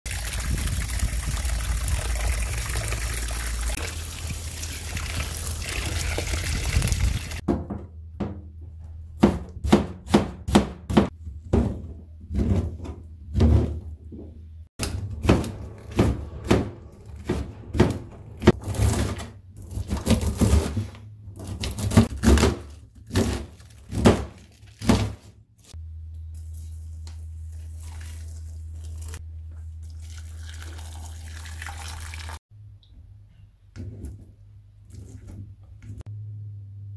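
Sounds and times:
hot water pouring into bowl: 0.1 - 7.4, 29.8 - 32.4
running water splashing in metal pot: 0.1 - 7.4, 29.9 - 32.4
low steady hum: 32.6 - 36.9.

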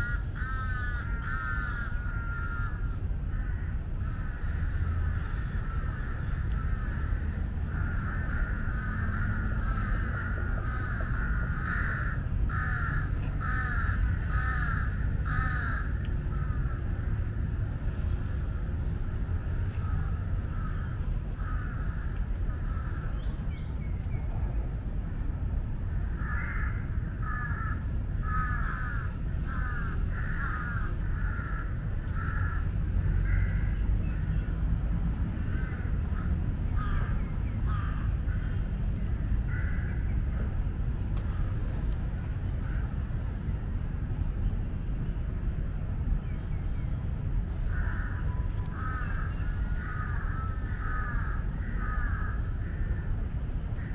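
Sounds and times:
crows cawing: 0.0 - 17.1, 19.6 - 23.2, 26.1 - 34.4, 35.4 - 38.6, 39.4 - 40.1, 42.6 - 43.0, 47.7 - 53.9
steady low rumble: 0.0 - 53.9.

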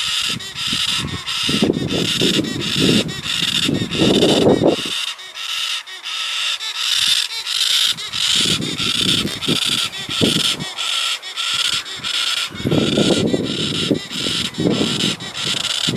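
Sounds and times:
galahs screeching: 0.0 - 15.9.

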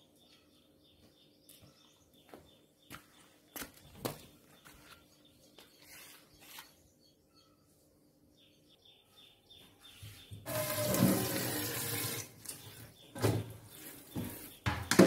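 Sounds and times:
faint bird chirps: 4.4 - 10.5.

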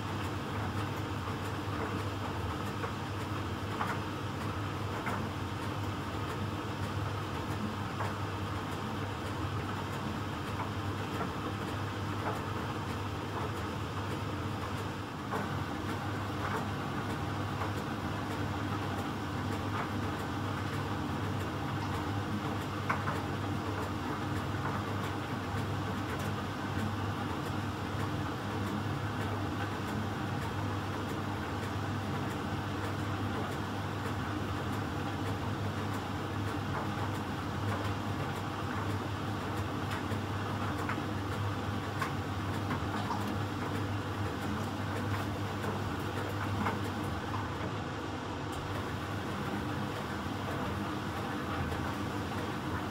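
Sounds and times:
tumble dryer humming: 43.4 - 52.9.

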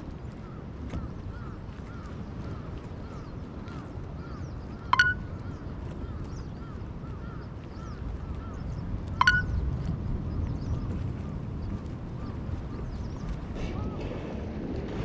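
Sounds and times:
low steady rumble: 0.0 - 15.0
loud bird calls: 4.2 - 8.6
faint bird chirping: 4.2 - 9.6.

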